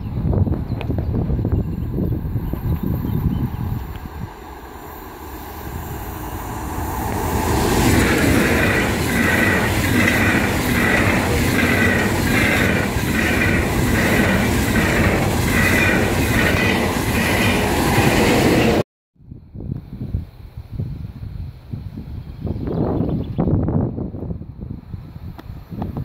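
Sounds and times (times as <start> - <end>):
high-speed train passing: 0.1 - 18.9.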